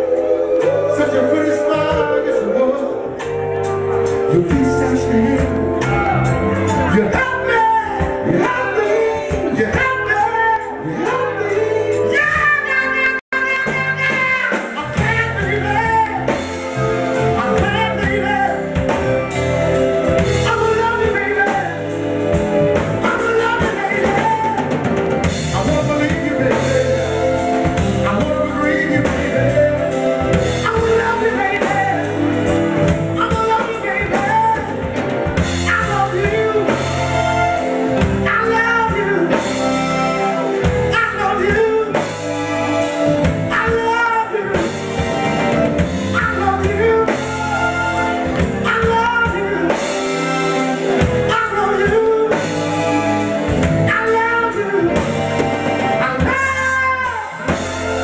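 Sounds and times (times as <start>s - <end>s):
male vocal group singing: 0.0s - 19.2s, 20.0s - 42.4s
drum kit: 0.0s - 58.0s.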